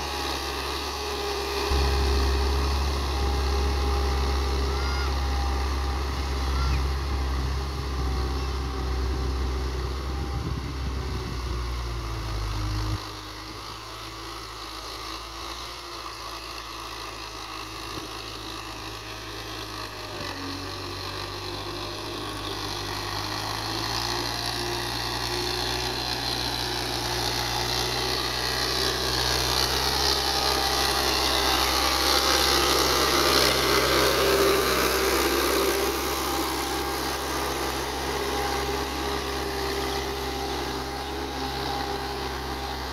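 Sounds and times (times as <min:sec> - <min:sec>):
tractor diesel engine running: 0:00.0 - 0:42.9.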